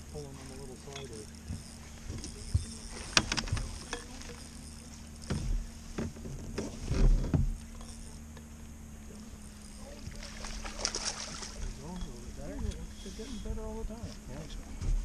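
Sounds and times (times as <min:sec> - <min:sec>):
steady low hum: 0:00.0 - 0:15.0
knocks and thumps on a boat: 0:00.9 - 0:04.4, 0:05.2 - 0:08.4, 0:14.1 - 0:15.0.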